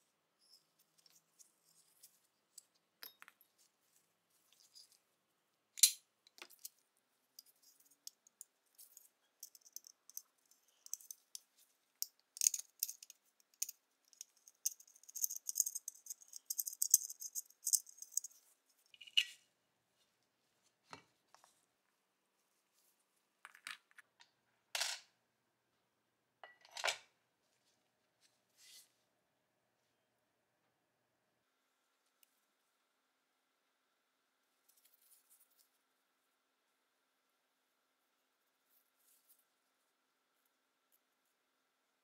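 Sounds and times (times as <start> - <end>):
metal clicks and scrapes: 7.4 - 11.5.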